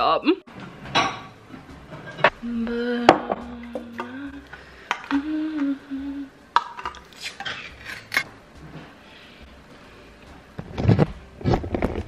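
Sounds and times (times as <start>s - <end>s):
person humming: 2.3s - 6.4s
metal lid tearing: 6.8s - 8.3s.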